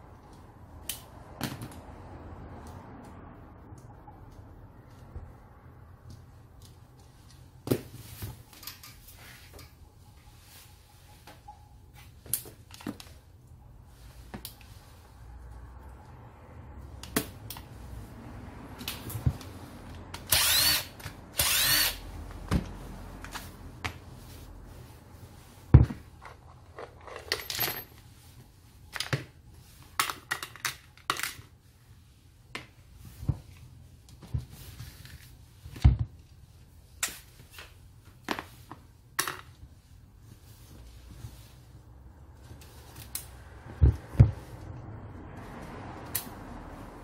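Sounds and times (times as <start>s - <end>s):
metal parts and tools clicking: 8.4s - 9.8s, 26.2s - 28.0s.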